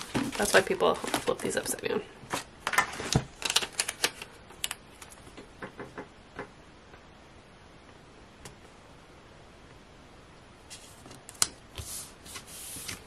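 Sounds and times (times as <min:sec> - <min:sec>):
paper rustling: 0:00.0 - 0:01.7, 0:10.7 - 0:13.0.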